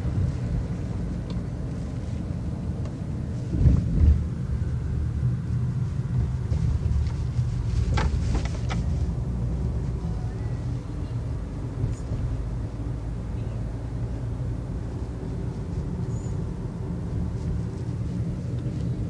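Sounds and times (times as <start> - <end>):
engine and road rumble: 0.0 - 19.0.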